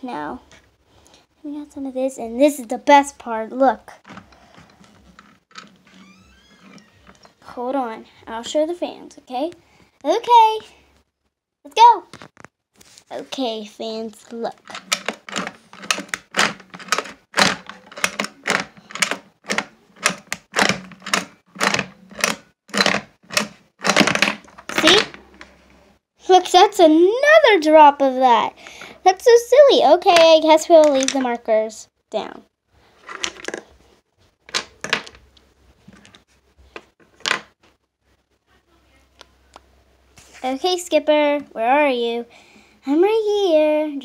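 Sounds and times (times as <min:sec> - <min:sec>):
plastic toy gears clattering: 0:04.1 - 0:06.0, 0:14.6 - 0:25.5.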